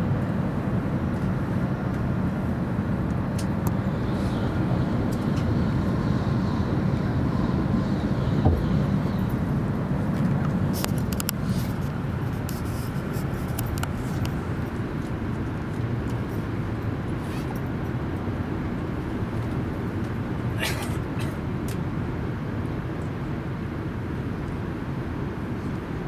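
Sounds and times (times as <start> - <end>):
train running rumble: 6.6 - 14.8.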